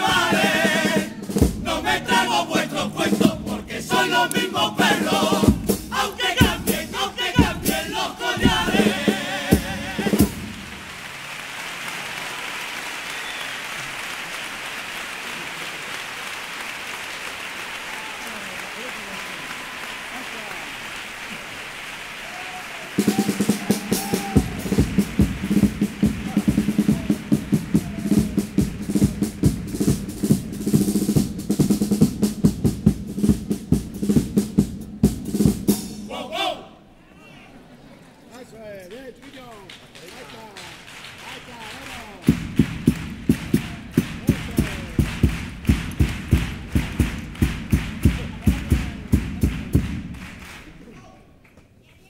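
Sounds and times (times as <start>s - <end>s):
chorus singing in unison: 0.0s - 10.6s, 36.0s - 36.9s
drum hits: 0.0s - 11.1s, 23.0s - 36.2s, 42.2s - 50.5s
audience applauding: 3.8s - 31.2s, 38.2s - 51.0s.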